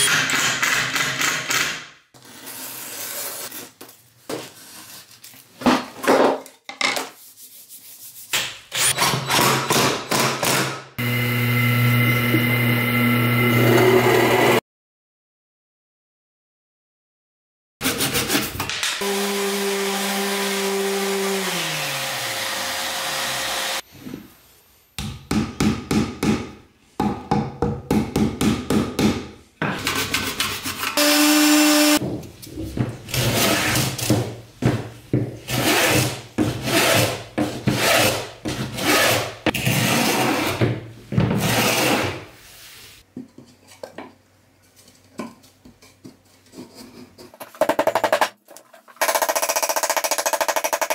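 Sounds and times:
power tool motor running: 11.0 - 14.6.

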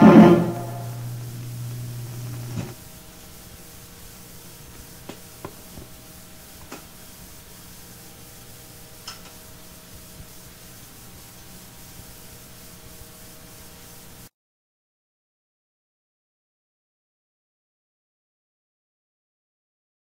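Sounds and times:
mains hum: 0.0 - 14.3
record surface hiss: 0.0 - 14.3
record clicks: 1.2 - 2.7.

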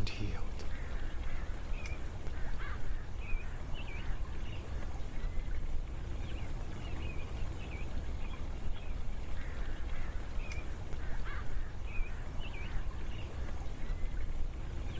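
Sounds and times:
steady low rumble: 0.0 - 1.0.

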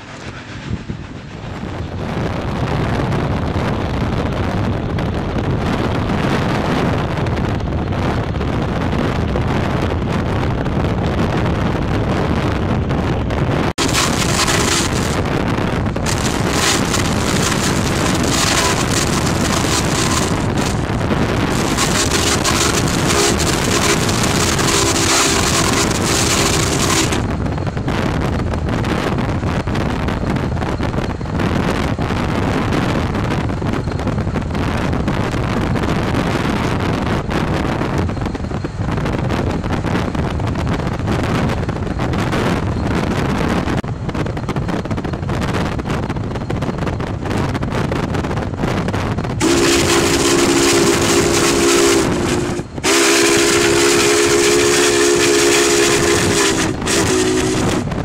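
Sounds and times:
wind rush: 0.0 - 58.0
car road noise: 13.8 - 29.9.

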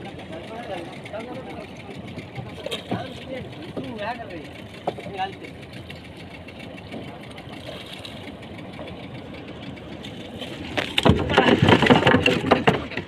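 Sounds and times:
boat engine idling: 0.0 - 13.0
fish splashing and knocking: 9.9 - 13.0.

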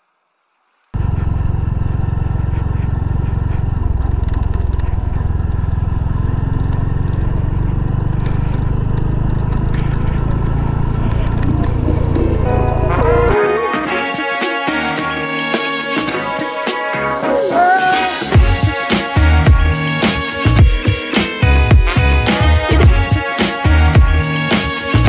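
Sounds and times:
motorcycle engine running: 1.0 - 13.4, 18.4 - 25.0
rush of noise: 9.7 - 13.6.

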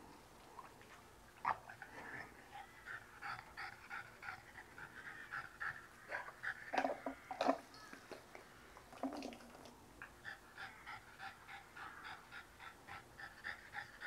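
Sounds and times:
dog panting: 1.5 - 8.2, 10.0 - 14.0.

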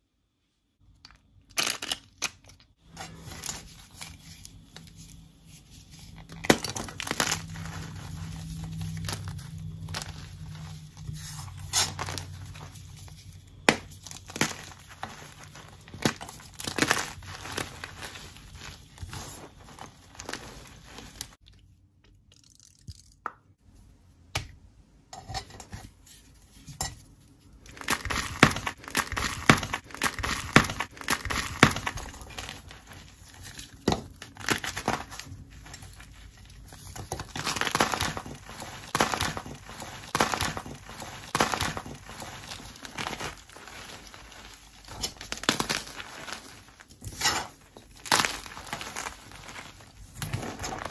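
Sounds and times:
chalk blocks crunching and snapping: 37.0 - 43.4.

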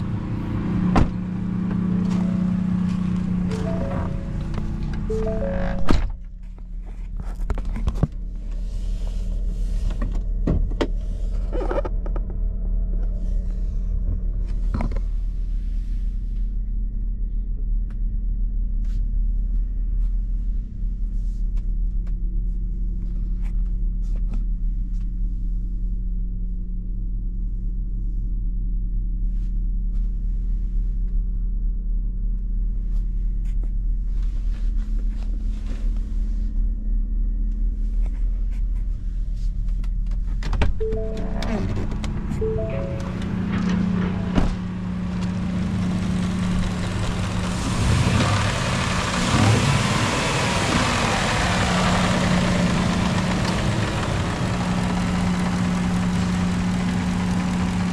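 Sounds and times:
pickup engine idling: 40.9 - 57.9.

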